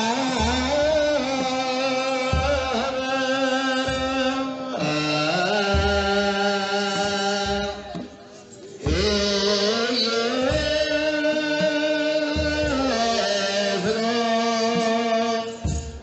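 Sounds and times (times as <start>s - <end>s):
group chanting a hymn: 0.0s - 16.0s
low drum strokes: 0.0s - 16.0s.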